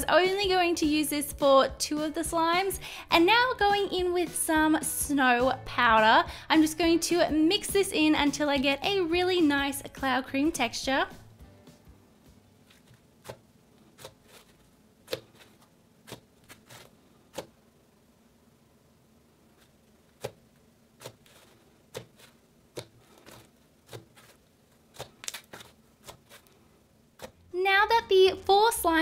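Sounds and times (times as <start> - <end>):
soft pops and crackles: 19.5 - 26.6.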